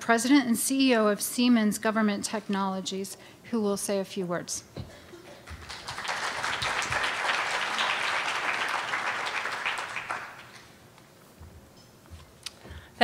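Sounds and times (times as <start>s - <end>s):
audience applauding: 5.4s - 10.6s.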